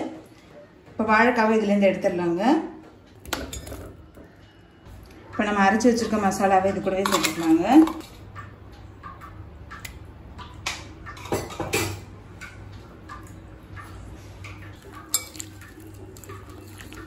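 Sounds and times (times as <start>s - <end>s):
stirring paste in bowl: 14.8s - 17.0s.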